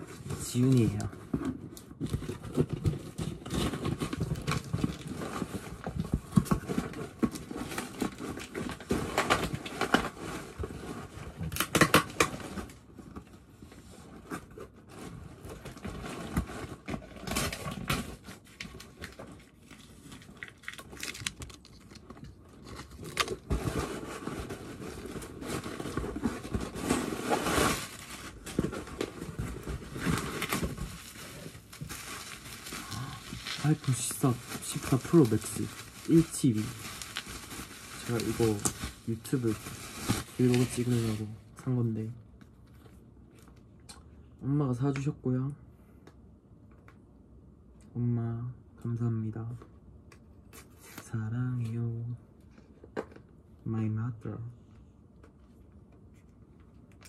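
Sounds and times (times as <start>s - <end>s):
cardboard tearing and rustling: 0.0s - 12.8s, 14.2s - 41.3s
plastic wrapping crinkling: 15.4s - 41.3s.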